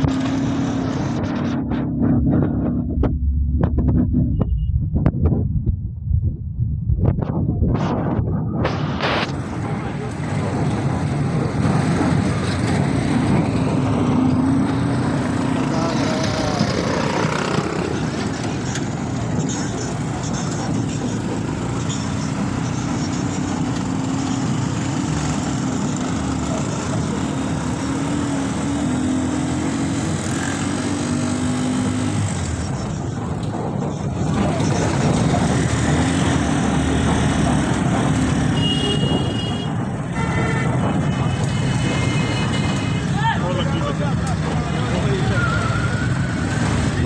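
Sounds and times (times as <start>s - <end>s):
vehicle engine running: 0.0s - 30.6s
road and traffic noise: 0.0s - 47.0s.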